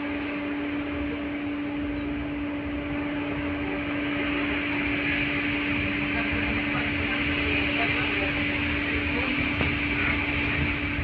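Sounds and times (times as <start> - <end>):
tram electrical hum: 0.0 - 11.0
tram running rumble: 0.0 - 11.0.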